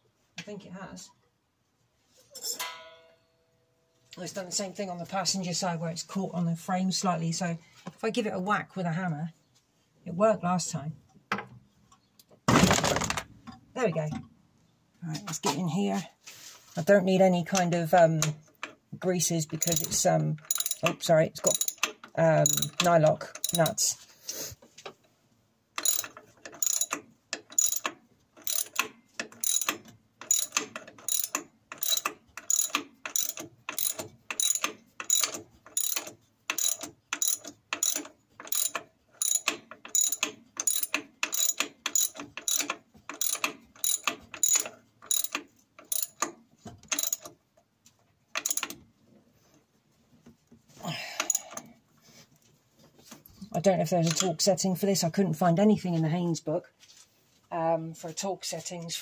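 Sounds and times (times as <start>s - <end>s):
ratchet wrench clicking: 19.6s - 23.8s, 25.8s - 46.3s, 46.9s - 47.3s, 48.4s - 48.8s.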